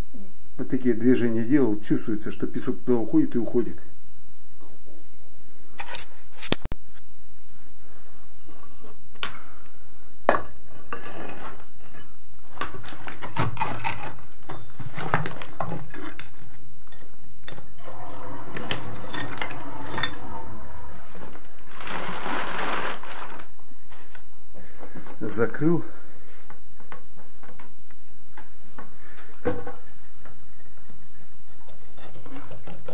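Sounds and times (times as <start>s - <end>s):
rustling hiss: 17.8s - 24.8s.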